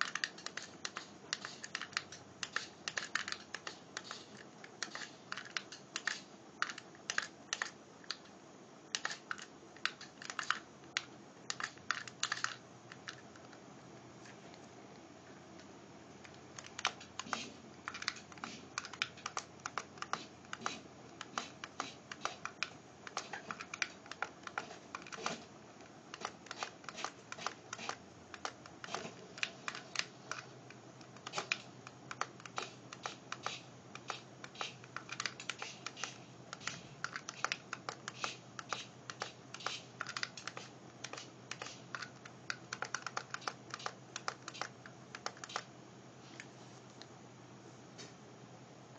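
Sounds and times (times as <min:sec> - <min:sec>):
rc truck clicking and tapping: 0:00.0 - 0:08.3.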